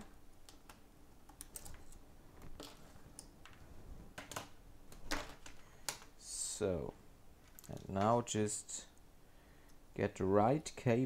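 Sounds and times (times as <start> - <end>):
small clicks and taps: 0.0 - 3.6.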